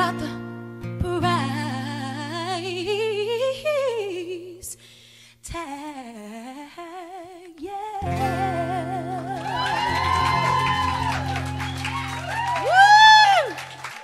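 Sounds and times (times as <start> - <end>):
woman singing with vibrato: 0.0 - 0.4, 1.0 - 4.8, 5.4 - 11.0
acoustic guitar chord: 8.0 - 12.0.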